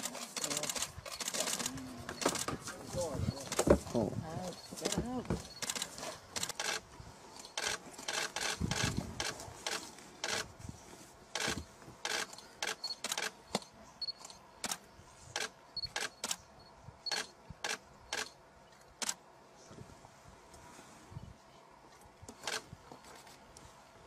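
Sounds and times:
camera shutters clicking: 0:00.0 - 0:02.5, 0:05.6 - 0:06.8, 0:11.4 - 0:14.8.

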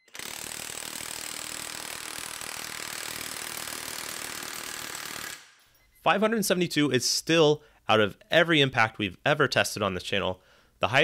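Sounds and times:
impact wrench hammering on bolt: 0:00.1 - 0:05.5.

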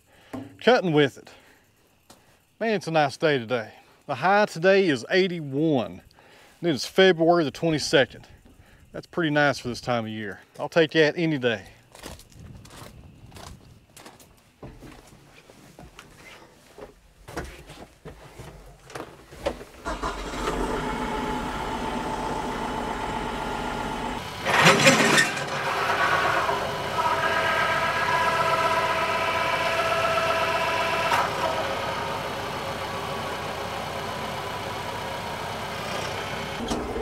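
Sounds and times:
brush cutter blades whining: 0:19.8 - 0:37.0
tractor diesel engine running: 0:19.8 - 0:37.0.

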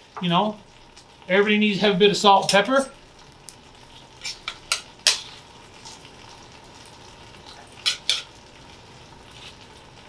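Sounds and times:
vegetables sizzling: 0:00.0 - 0:10.0
metal tongs clinking on pan: 0:04.2 - 0:05.3, 0:07.5 - 0:08.3.

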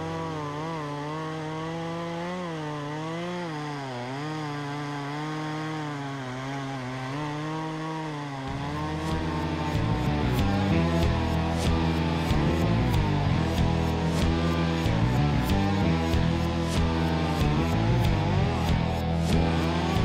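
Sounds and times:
chainsaw cutting wood: 0:00.0 - 0:20.0
guitar music: 0:08.5 - 0:20.0.

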